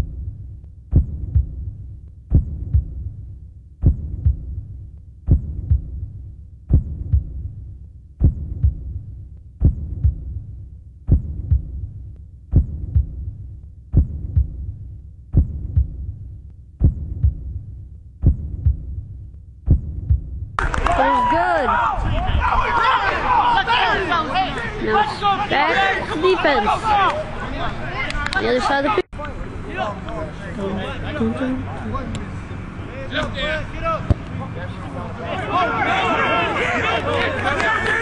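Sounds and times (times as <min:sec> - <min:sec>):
heartbeat thumps: 0:00.0 - 0:20.6.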